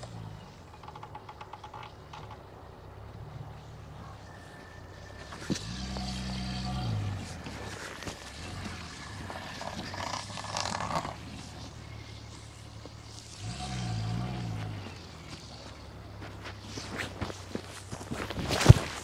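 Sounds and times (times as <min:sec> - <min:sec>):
car engine revving: 0:00.0 - 0:18.4
tyres churning through slush: 0:04.3 - 0:19.0.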